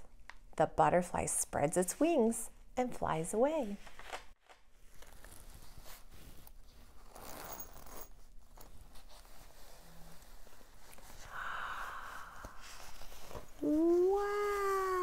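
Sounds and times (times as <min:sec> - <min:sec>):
fabric puppet rustling: 0:03.5 - 0:11.3, 0:12.2 - 0:15.0.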